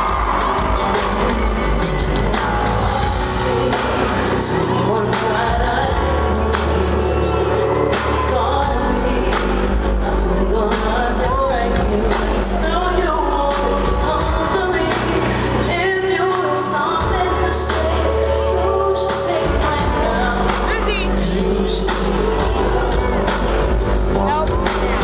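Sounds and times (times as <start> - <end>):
band playing: 0.0 - 15.3
woman singing: 0.0 - 25.0
deep steady bass: 19.5 - 25.0.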